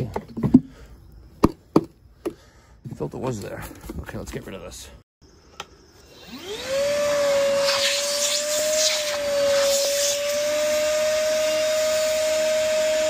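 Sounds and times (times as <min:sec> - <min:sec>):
vacuum motor whining: 0:05.6 - 0:13.0.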